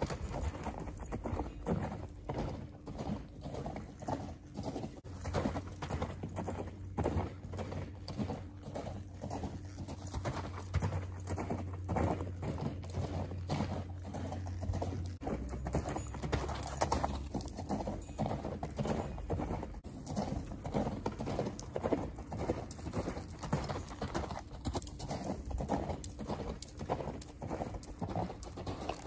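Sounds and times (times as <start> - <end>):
horse hoofbeats on sandy dirt: 0.0 - 29.0.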